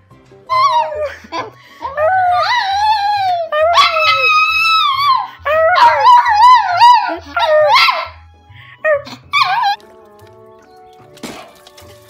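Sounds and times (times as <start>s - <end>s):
background music: 0.0s - 12.0s
small dog howling: 0.5s - 1.1s, 1.9s - 8.2s, 8.9s - 9.8s.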